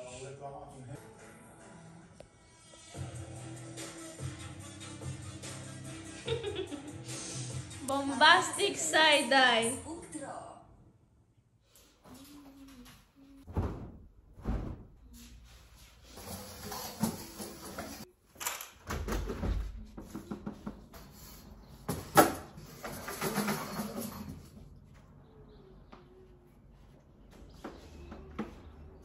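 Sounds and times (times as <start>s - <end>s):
knocks and clatters of metal rack: 21.9s - 24.4s.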